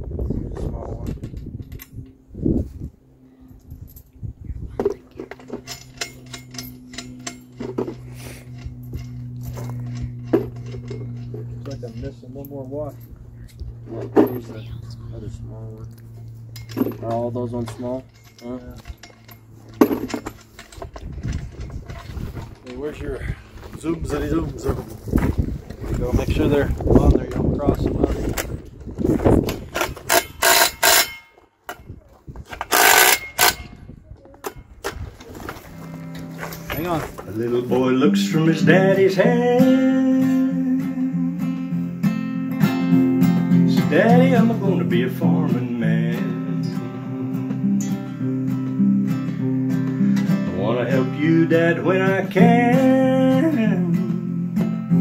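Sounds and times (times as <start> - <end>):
steady low hum: 0.0 - 55.0
washers and nuts clinking: 4.8 - 14.7, 16.3 - 23.0, 29.4 - 33.8
socket ratchet clicking: 29.8 - 31.2, 32.7 - 33.7.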